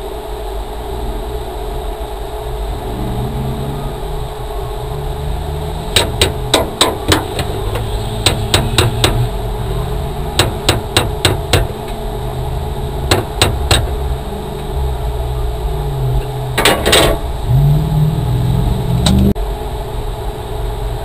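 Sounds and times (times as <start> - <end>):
steady low hum: 0.0 - 21.0
hammer blows on metal: 5.9 - 9.4.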